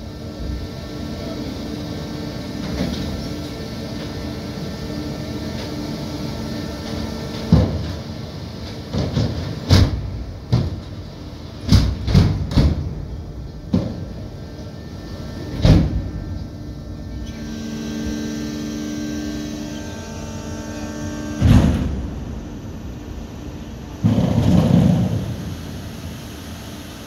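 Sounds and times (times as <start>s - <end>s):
steady mechanical hum: 0.0s - 27.0s
heavy metal clunks: 11.6s - 13.1s.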